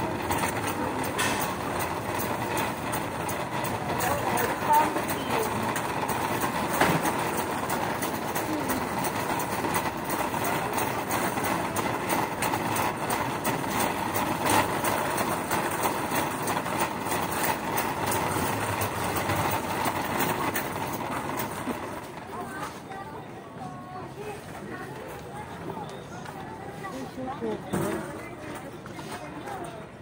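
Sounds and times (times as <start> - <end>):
shopping carts rattling on concrete: 0.0 - 23.0, 26.8 - 29.8
store noise hum: 0.0 - 30.0.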